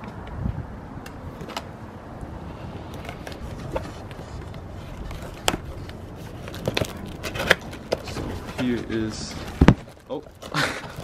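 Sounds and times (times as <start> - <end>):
wind rumble on microphone: 0.0 - 1.4.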